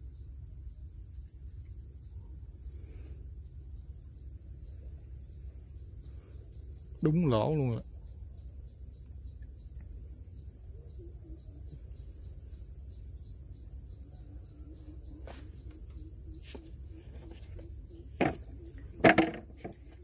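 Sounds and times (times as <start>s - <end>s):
crickets and insects droning: 0.0s - 20.0s
sharp knocks: 18.2s - 19.9s.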